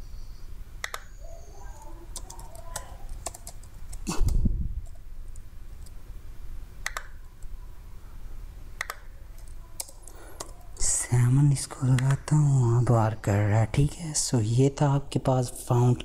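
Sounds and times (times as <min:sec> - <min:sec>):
mouse clicks: 0:00.8 - 0:01.1, 0:06.8 - 0:07.5, 0:08.8 - 0:10.6
keyboard typing: 0:01.8 - 0:06.0, 0:08.8 - 0:10.7.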